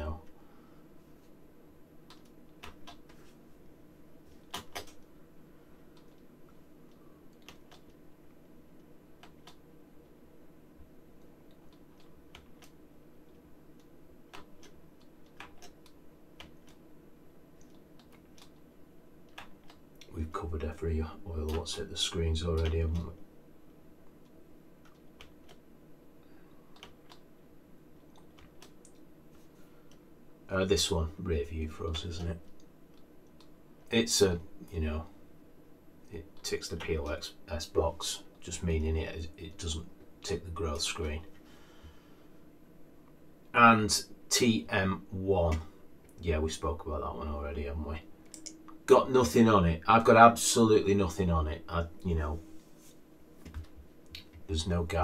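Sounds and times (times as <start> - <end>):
faint steady hum: 0.0 - 55.0
computer clicks: 13.8 - 16.8, 48.2 - 48.8.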